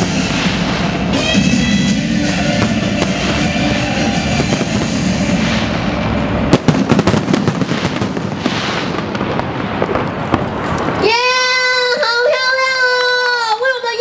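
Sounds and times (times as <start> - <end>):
fireworks shells bursting: 0.0 - 11.0
fireworks pops and crackles: 4.4 - 5.7, 6.5 - 11.2.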